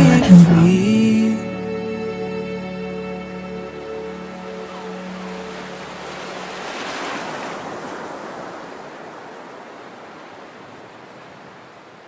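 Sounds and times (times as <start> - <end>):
surf-like rushing noise: 4.3 - 12.0.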